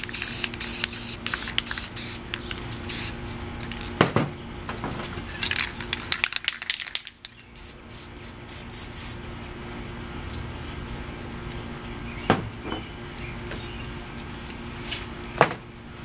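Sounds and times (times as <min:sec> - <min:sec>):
spray paint can hissing: 0:00.0 - 0:03.2, 0:05.4 - 0:09.2, 0:10.8 - 0:12.6.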